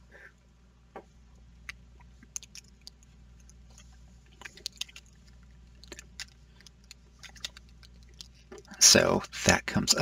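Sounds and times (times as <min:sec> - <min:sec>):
small parts clicking: 0:01.6 - 0:08.8.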